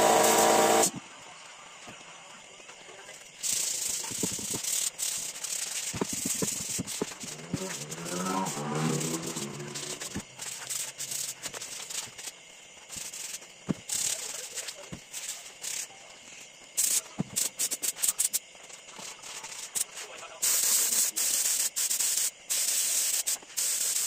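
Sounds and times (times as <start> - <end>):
sandpaper rubbing on wood: 3.5 - 12.2.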